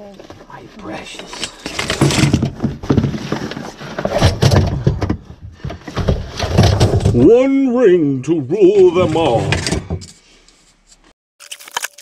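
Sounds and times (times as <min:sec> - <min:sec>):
items clattering in a container: 0:01.3 - 0:07.3.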